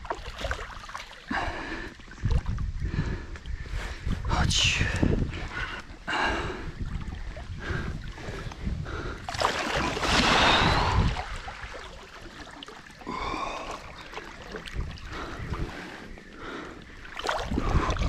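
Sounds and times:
fish thrashing and splashing water: 0.0 - 1.3, 9.2 - 16.1, 17.0 - 18.0.

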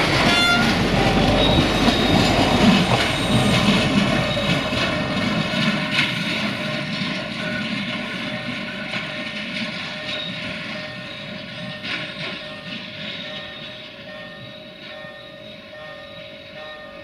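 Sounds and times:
wheels clicking on rails: 0.0 - 17.0.

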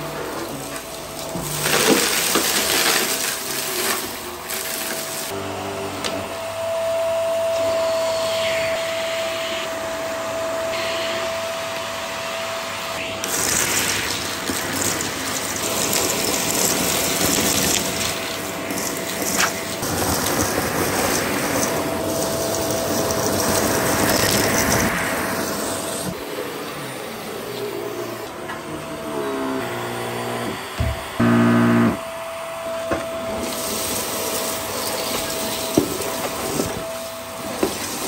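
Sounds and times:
vacuum cleaner running: 0.0 - 38.0
debris being sucked up: 0.5 - 5.3, 13.2 - 26.2.

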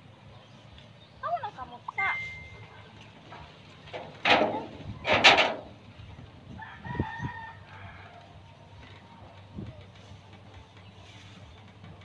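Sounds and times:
rooster crowing: 6.6 - 8.3.

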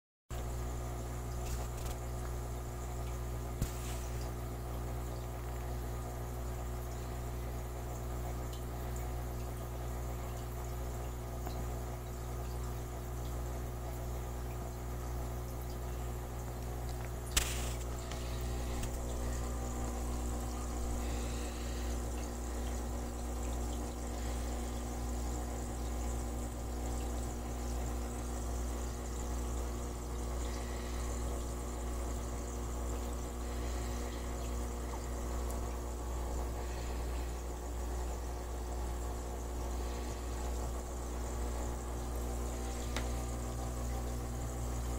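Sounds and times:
aquarium equipment humming: 0.3 - 44.9
water bubbling: 14.0 - 44.9.

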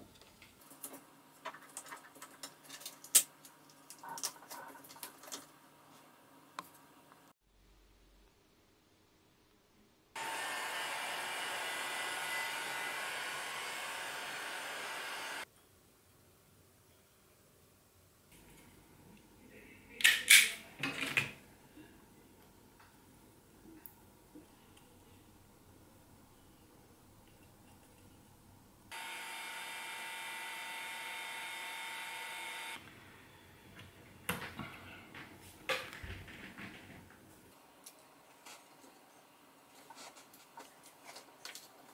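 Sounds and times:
heat gun blowing air: 10.2 - 15.4, 28.9 - 32.8.

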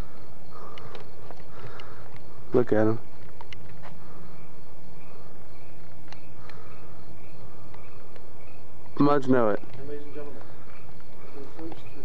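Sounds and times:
crickets chirping faintly: 0.0 - 12.0
small clicks: 0.7 - 2.2, 3.2 - 4.0.

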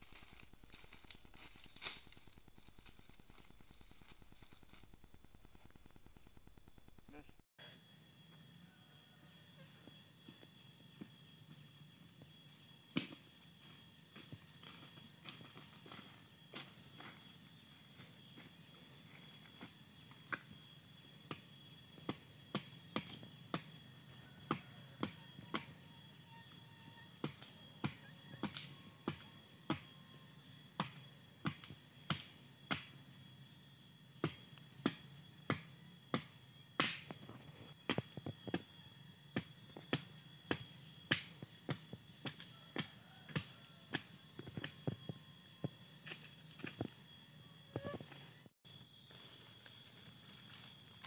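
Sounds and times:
machete chopping wood: 34.2 - 37.2.

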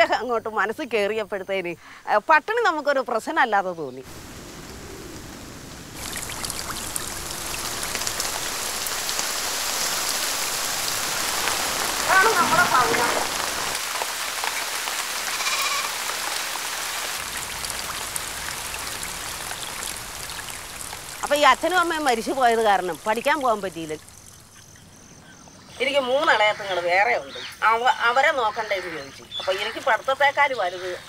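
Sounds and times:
rain falling: 2.6 - 31.0.

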